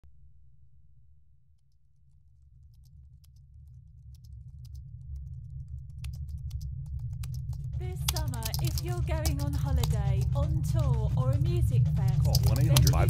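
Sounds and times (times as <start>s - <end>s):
low rumble: 2.4s - 13.0s
keyboard typing clicks: 7.2s - 10.5s.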